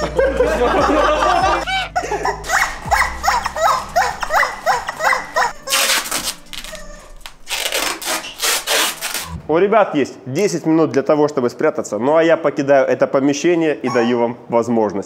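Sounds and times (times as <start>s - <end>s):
rubber squeaky chickens squeaking: 1.6s - 9.4s, 13.9s - 14.3s
adhesive tape ripping off roll: 5.0s - 9.4s.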